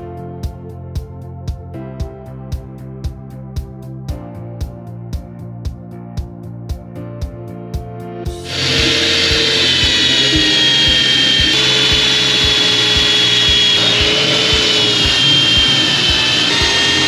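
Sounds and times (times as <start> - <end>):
electric drill whining under load: 8.4 - 17.0.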